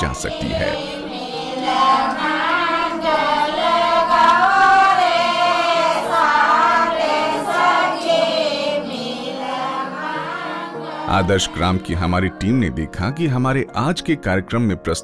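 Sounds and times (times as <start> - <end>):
women singing together: 0.0 - 11.7.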